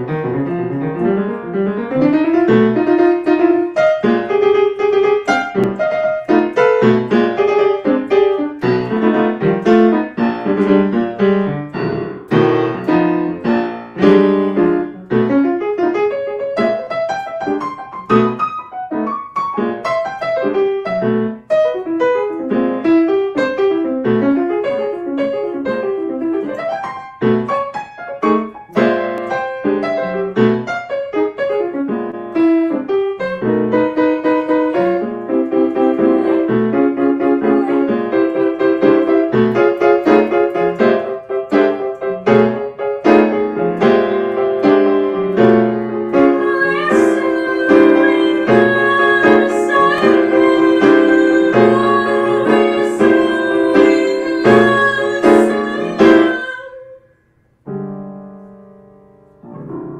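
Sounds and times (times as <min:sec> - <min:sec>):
solo grand piano: 0:00.0 - 0:59.9.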